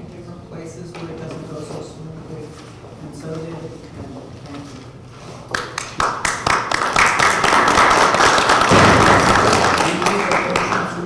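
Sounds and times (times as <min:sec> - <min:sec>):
small group applauding: 0:05.4 - 0:11.0.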